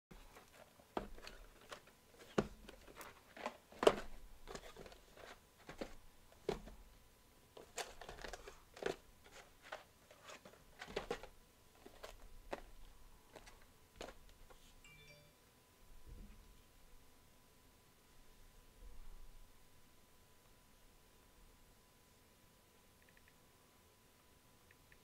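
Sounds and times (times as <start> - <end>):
cardboard boxes knocking on table: 5.6 - 6.8.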